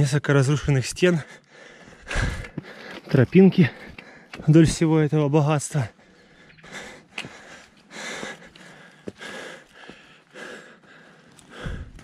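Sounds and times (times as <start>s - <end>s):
person breathing close to microphone: 1.3s - 3.1s, 6.0s - 12.0s.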